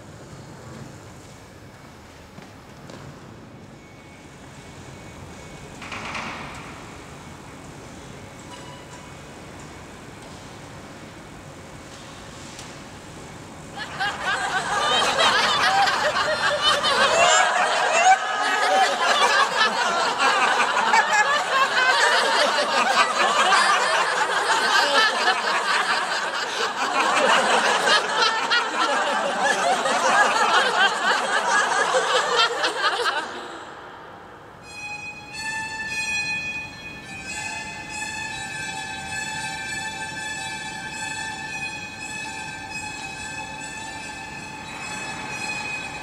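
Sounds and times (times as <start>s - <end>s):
crowd laughing loudly: 13.8s - 34.0s
held musical notes: 34.6s - 46.0s.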